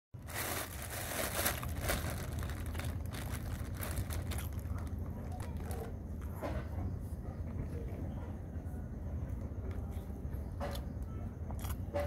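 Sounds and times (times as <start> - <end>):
food wrapping crinkling: 0.2 - 5.7
steady low rumble: 0.2 - 10.6.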